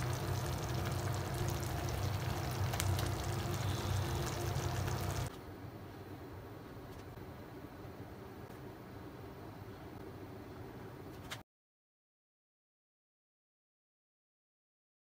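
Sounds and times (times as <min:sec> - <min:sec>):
liquid bubbling in a pot: 0:00.0 - 0:05.3
steady low hum: 0:00.0 - 0:11.1
faint hiss: 0:02.7 - 0:05.3.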